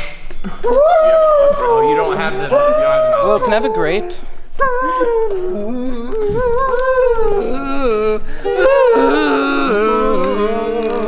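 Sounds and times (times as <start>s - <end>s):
wordless singing: 0.6s - 11.0s.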